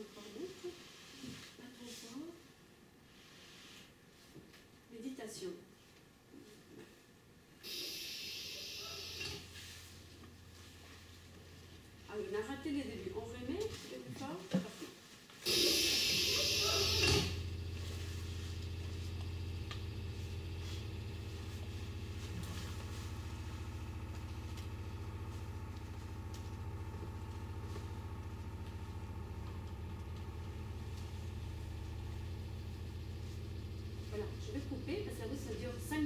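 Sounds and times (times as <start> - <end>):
low pulsing engine-like drone: 15.5 - 36.0.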